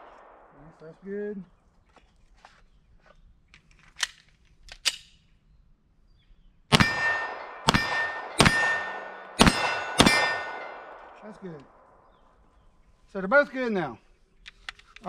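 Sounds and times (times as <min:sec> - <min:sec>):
gun handling clicks: 0:03.5 - 0:05.4, 0:14.4 - 0:15.0
pistol shots: 0:06.7 - 0:11.9
steel plate target clanging: 0:06.8 - 0:11.1.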